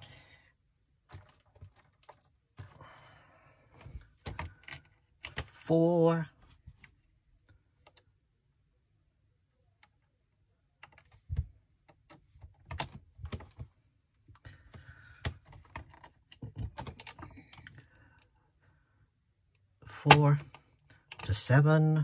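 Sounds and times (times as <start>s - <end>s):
rustling of wire handling: 1.1s - 2.8s.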